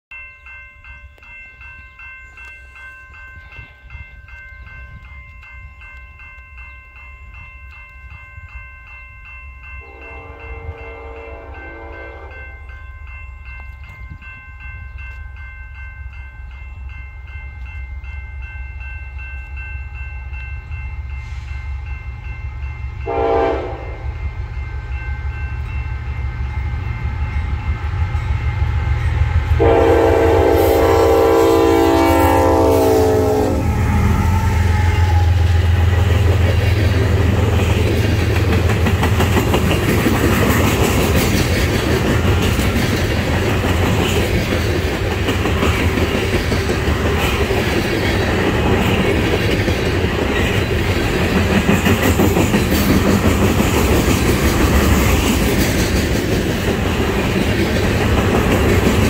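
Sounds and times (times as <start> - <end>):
diesel freight train rumble: 9.7 - 59.0
locomotive horn: 9.8 - 12.5, 23.0 - 24.1, 29.6 - 35.9.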